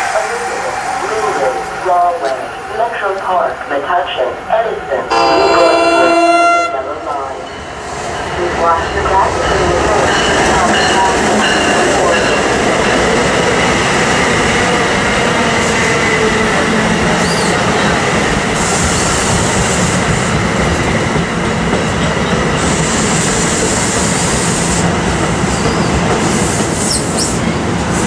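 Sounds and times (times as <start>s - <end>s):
train wheels on rails: 7.1s - 28.0s.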